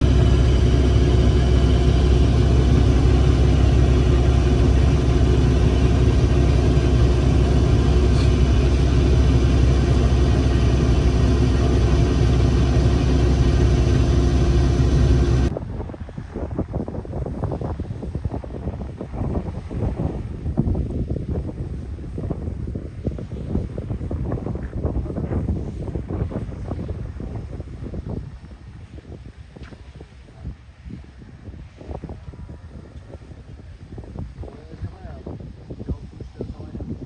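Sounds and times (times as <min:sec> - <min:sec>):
vehicle engine running: 0:00.0 - 0:15.5
wind on microphone: 0:00.0 - 0:37.0.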